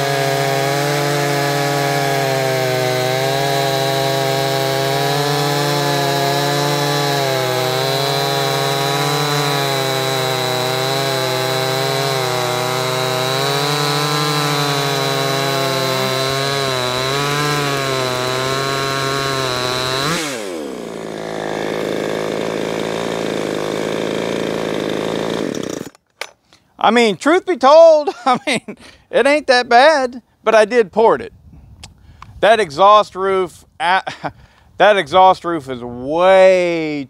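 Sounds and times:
chainsaw running steadily: 0:00.0 - 0:26.0
chainsaws cutting log: 0:00.0 - 0:26.4.

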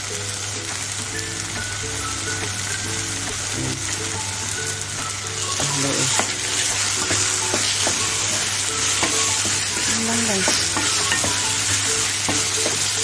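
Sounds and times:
vegetables sizzling in a pan: 0:00.0 - 0:13.0
wooden spoon scraping a pan: 0:05.5 - 0:13.0.

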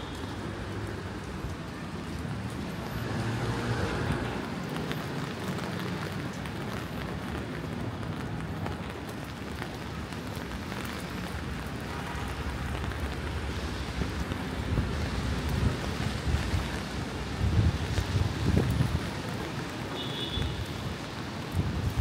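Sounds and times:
rain on wet pavement: 0:00.0 - 0:22.0
wind buffeting microphone: 0:13.9 - 0:19.3, 0:20.8 - 0:22.0.

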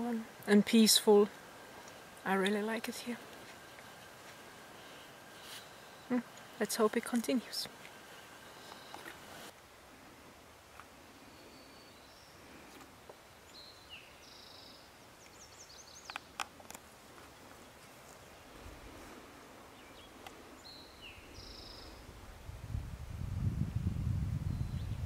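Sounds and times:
faint outdoor background noise: 0:00.0 - 0:25.0
songbird singing buzzy phrase: 0:19.8 - 0:22.0.

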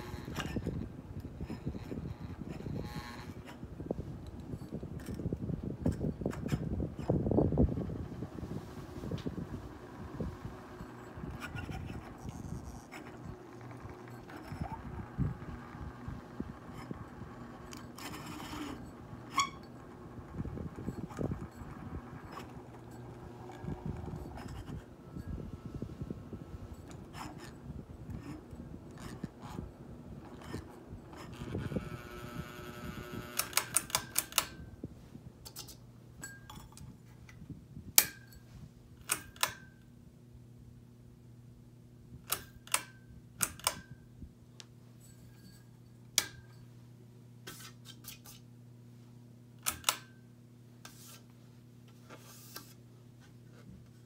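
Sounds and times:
ceiling fan humming: 0:00.0 - 0:54.0
rubbing and scraping: 0:47.5 - 0:48.4, 0:50.8 - 0:51.4.

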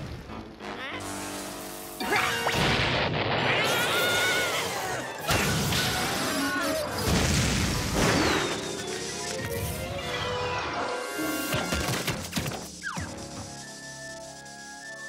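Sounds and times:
electrical zapping and crackling: 0:00.0 - 0:10.0, 0:11.3 - 0:15.0
background music: 0:00.0 - 0:15.0
cartoon crashes and booms: 0:02.3 - 0:08.6.

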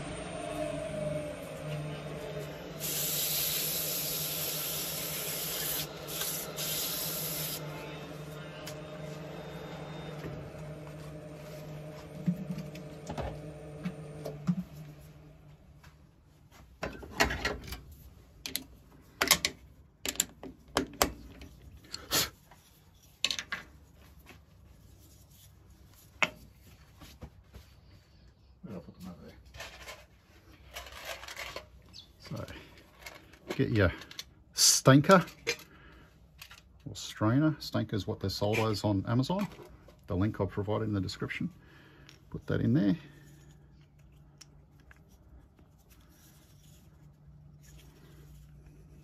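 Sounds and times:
lathe motor humming: 0:00.0 - 0:15.5
sandpaper hissing on spinning wood: 0:02.8 - 0:07.8.

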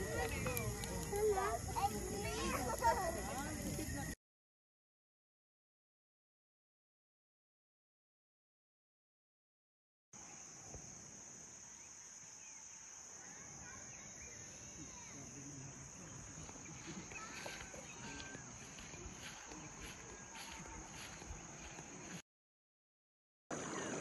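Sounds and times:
birds chirping: 0:00.0 - 0:04.2, 0:11.8 - 0:22.2
insects chorus: 0:00.0 - 0:04.2, 0:10.2 - 0:22.2.

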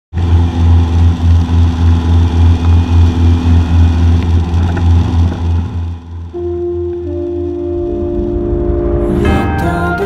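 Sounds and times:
propeller engine droning: 0:00.1 - 0:10.0.

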